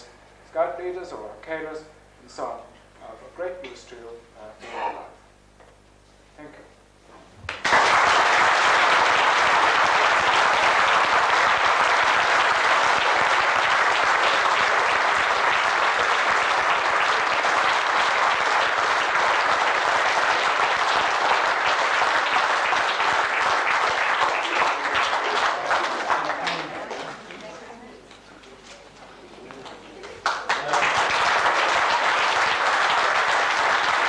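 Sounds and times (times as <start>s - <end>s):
audience applauding: 7.5s - 27.4s, 29.5s - 34.0s.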